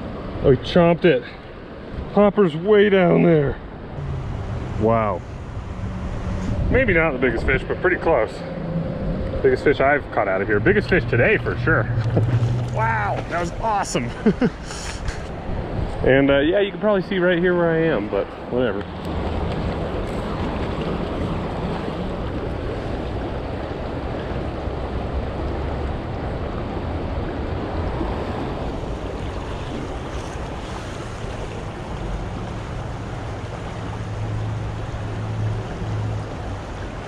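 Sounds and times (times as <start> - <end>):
wind rumble on microphone: 4.0 - 13.6, 14.5 - 16.5
creek flowing over rocks: 17.7 - 37.0.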